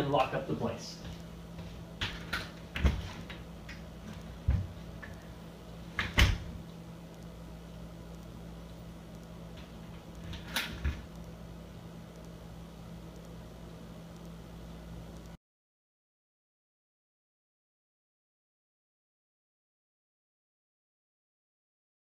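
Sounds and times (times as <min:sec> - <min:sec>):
low room hum: 0:00.0 - 0:15.4
footsteps: 0:00.8 - 0:04.9
door shutting: 0:02.1 - 0:03.3, 0:06.0 - 0:06.6
quiet clicks: 0:06.6 - 0:07.4, 0:08.1 - 0:11.4, 0:12.1 - 0:12.4, 0:13.1 - 0:14.4, 0:15.1 - 0:15.4.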